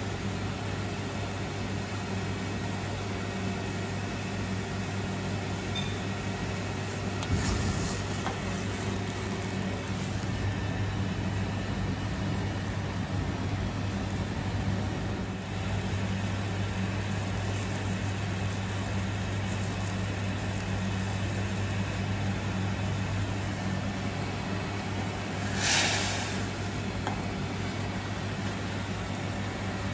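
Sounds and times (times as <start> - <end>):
gas burner running: 0.0 - 29.9
kitchen ventilation hum: 0.0 - 29.9
sauce boiling in a pan: 0.0 - 29.9.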